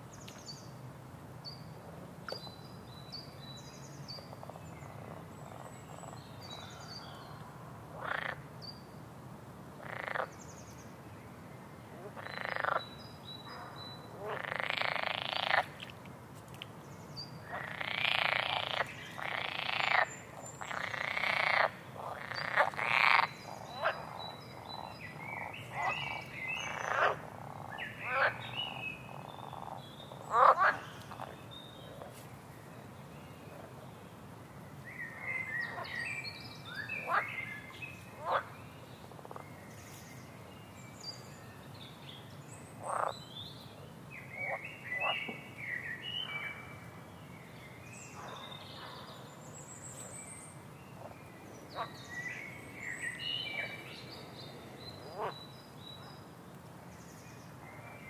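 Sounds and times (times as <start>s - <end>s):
frogs croaking: 4.2s - 8.5s, 9.8s - 10.4s, 12.0s - 16.0s, 17.4s - 32.2s, 35.1s - 39.5s, 42.8s - 43.2s, 44.2s - 45.6s, 51.0s - 55.5s.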